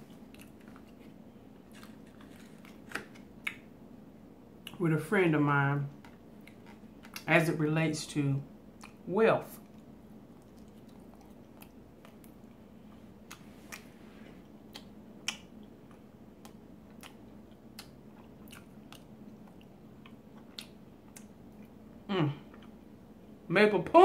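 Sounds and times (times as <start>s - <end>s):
person chewing food: 0.0s - 3.7s, 5.9s - 7.3s, 8.7s - 9.0s, 9.6s - 23.0s
faint steady hum: 0.0s - 24.0s.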